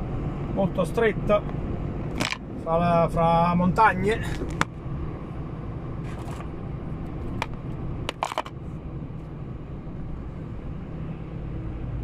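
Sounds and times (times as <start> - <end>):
lorry engine drone: 0.0 - 12.0.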